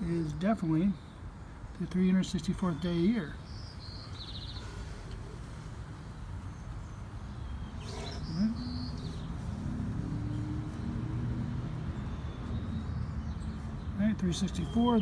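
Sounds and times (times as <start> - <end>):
bird chirps: 2.4 - 5.2, 6.0 - 15.0.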